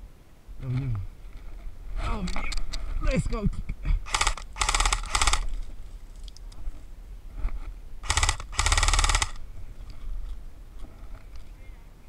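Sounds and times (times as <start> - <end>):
airsoft rifle bursts: 4.1 - 5.5, 8.0 - 9.4.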